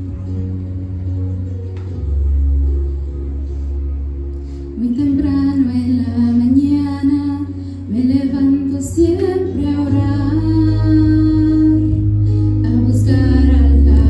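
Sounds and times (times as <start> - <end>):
low musical accompaniment: 0.0 - 14.0
woman singing: 4.8 - 14.0.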